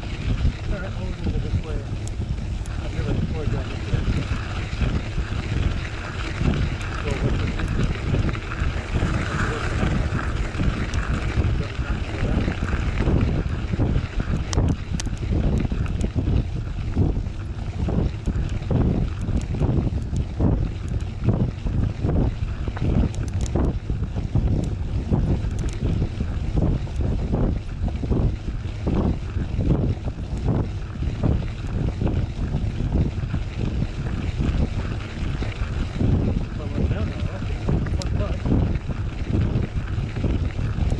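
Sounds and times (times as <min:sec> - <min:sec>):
bike tyre rolling on gravel: 0:00.0 - 0:40.9
wind buffeting microphone: 0:00.0 - 0:40.9
sharp ticks: 0:02.0 - 0:13.1, 0:14.0 - 0:16.2, 0:16.8 - 0:21.3, 0:22.6 - 0:23.8, 0:25.4 - 0:26.0.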